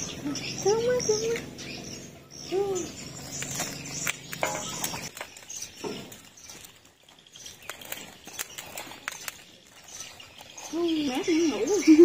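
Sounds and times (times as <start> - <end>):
plastic bags crinkling: 3.4 - 12.0.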